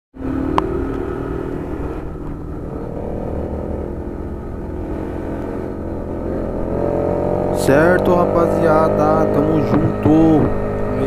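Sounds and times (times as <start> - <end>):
wind rumble on microphone: 0.2 - 8.0
small engine humming: 0.2 - 11.0.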